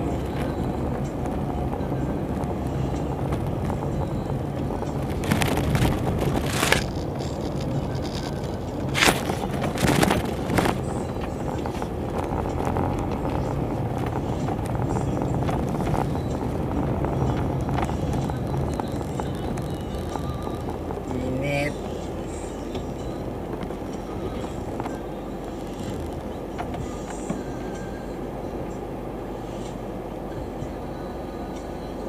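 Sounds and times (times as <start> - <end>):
car cabin road rumble: 0.0 - 32.0
rushes of road noise: 0.0 - 32.0.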